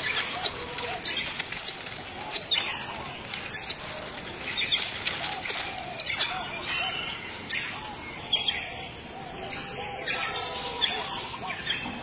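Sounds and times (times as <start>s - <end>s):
dry palm fronds rustling: 0.0s - 8.2s.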